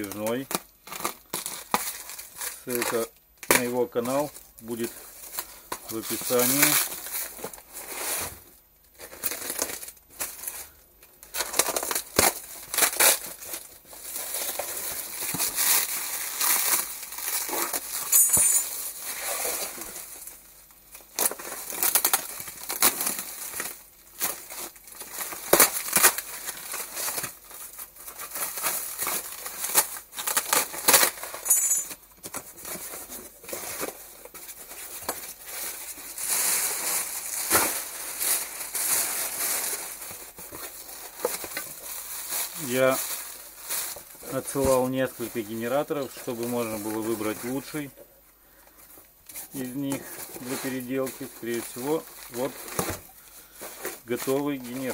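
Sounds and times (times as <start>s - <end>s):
plastic film crinkling and tearing: 0.0s - 18.1s, 18.7s - 31.4s, 32.0s - 47.9s, 48.8s - 54.9s
cardboard rustling: 4.0s - 8.4s, 49.3s - 54.9s.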